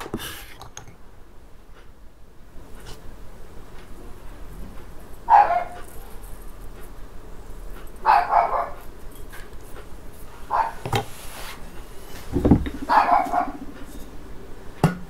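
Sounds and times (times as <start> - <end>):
dog barking: 5.3 - 5.9, 8.0 - 8.8, 10.5 - 10.8, 12.8 - 13.7.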